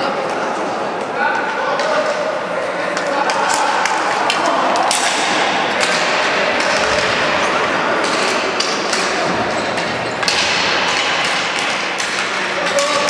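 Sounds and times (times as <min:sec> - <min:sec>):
echoing din in hall: 0:00.0 - 0:13.0.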